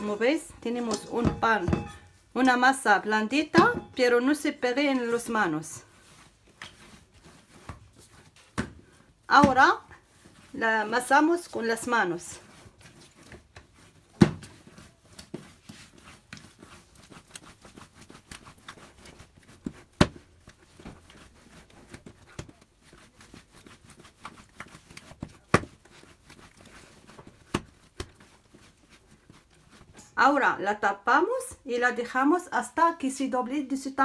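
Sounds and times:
dough squishing while kneaded: 0.0 - 34.0
dough slapping on countertop: 6.6 - 10.5, 12.8 - 30.1.

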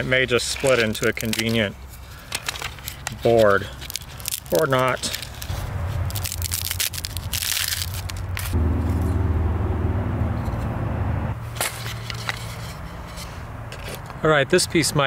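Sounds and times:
wood cracking and splintering: 2.4 - 8.6
low steady drone: 8.5 - 11.4.

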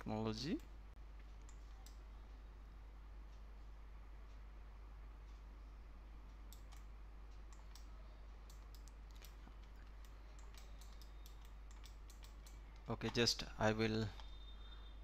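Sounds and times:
low steady hum: 0.0 - 15.0
keyboard and mouse clicks: 6.5 - 6.9, 7.5 - 13.3.

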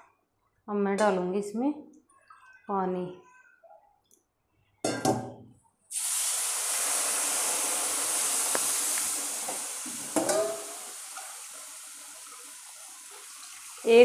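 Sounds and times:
water hissing and sizzling in hot pan: 5.9 - 14.0.

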